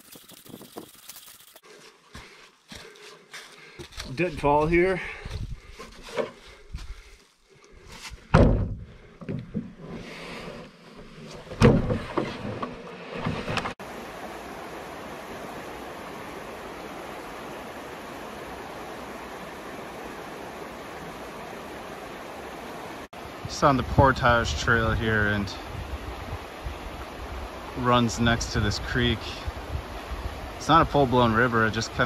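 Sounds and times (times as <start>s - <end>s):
rustling: 0.0s - 4.2s
footsteps: 0.0s - 8.3s
loud thumps: 8.3s - 9.7s, 11.5s - 13.8s
creek rushing over rocks: 13.8s - 32.0s.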